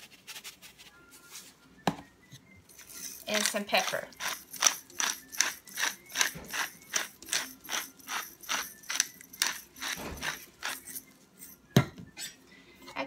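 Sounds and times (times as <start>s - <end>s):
pepper grinder ratcheting: 2.7s - 11.6s.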